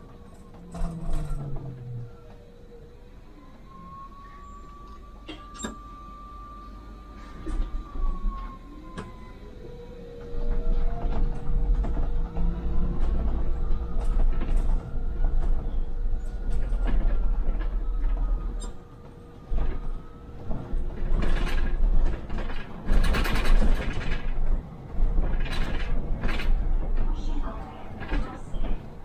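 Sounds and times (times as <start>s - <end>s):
bus motor whine: 0.0s - 29.0s
low engine rumble: 0.0s - 29.0s
rattling and clattering: 10.5s - 27.2s.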